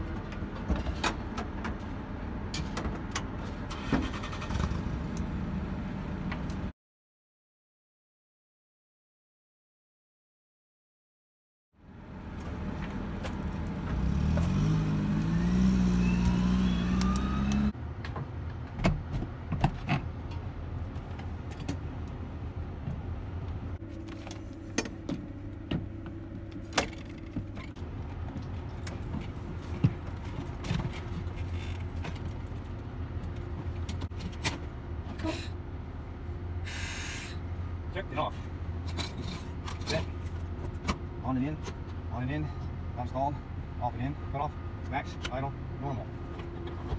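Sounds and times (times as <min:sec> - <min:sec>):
machine rising in pitch: 0:14.7 - 0:17.7.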